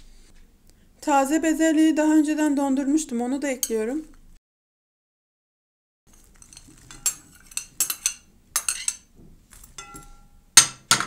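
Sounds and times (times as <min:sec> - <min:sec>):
metal spoon scraping glass bowl: 0:06.1 - 0:09.1
glass ringing: 0:09.8 - 0:11.0.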